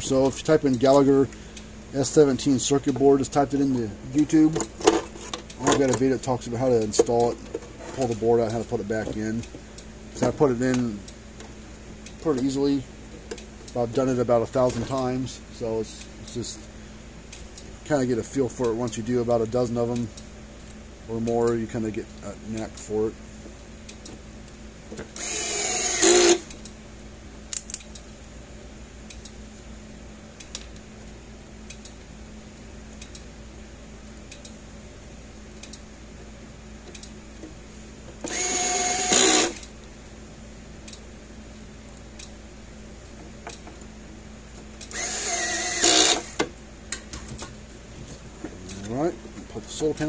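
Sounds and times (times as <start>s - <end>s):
cordless power screwdriver: 25.2s - 26.4s, 38.3s - 39.6s, 44.9s - 46.4s.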